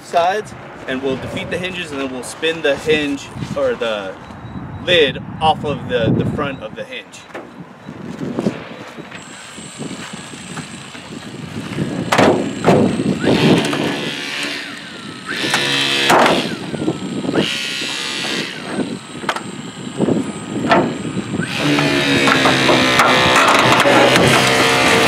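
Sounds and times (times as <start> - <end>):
squealing metal: 12.4 - 25.0.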